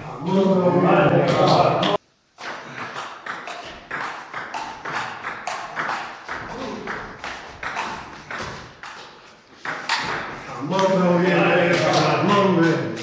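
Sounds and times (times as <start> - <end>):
ping pong ball clicking: 2.4 - 10.2.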